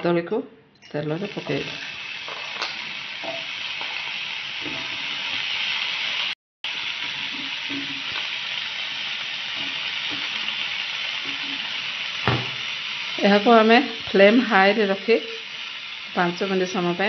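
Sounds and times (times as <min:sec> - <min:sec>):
banana pieces sizzling in oil: 0:01.0 - 0:17.0
pieces dropped into hot oil: 0:02.3 - 0:04.0.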